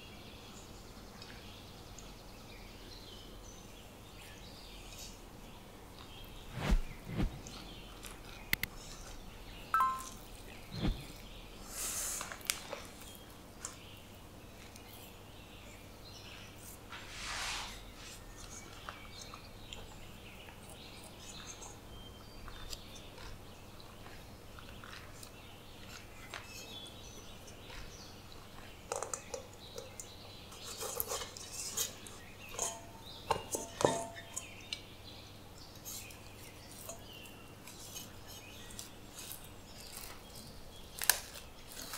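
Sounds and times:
hands kneading dough: 6.0 - 13.9
metal bowl ringing: 9.8 - 10.2.

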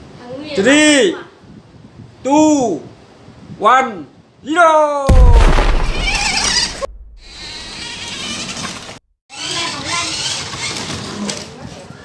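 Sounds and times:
low thump: 5.1 - 7.7
toy car motors whining: 7.3 - 11.5.

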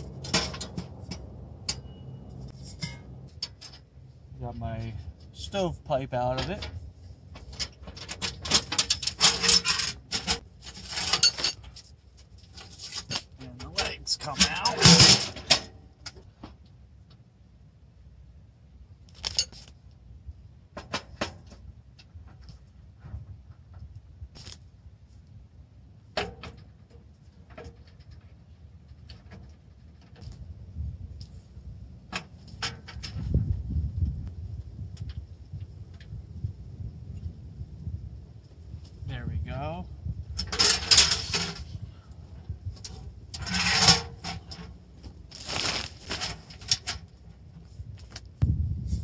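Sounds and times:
metal stove scraping on dry leaves: 0.0 - 3.8, 6.6 - 15.7, 40.4 - 48.0
low rumble: 0.0 - 5.4
metal stove clicks and clanks: 0.1 - 2.0, 2.7 - 3.9, 26.2 - 28.3, 40.4 - 41.7.

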